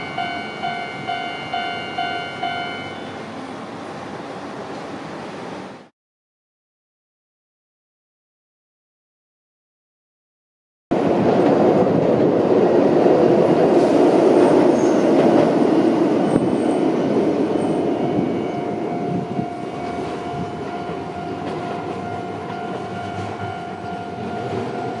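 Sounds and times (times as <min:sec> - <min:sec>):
steady high tone: 0:00.0 - 0:03.9, 0:16.2 - 0:25.0
tram rail rumble: 0:00.0 - 0:05.9, 0:10.9 - 0:25.0.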